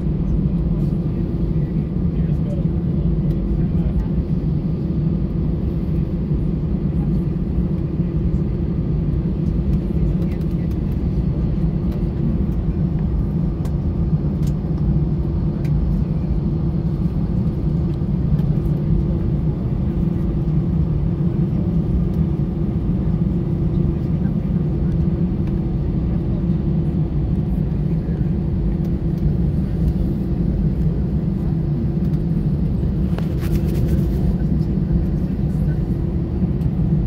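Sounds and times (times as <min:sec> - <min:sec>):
airplane cabin engine rumble: 0:00.0 - 0:37.0.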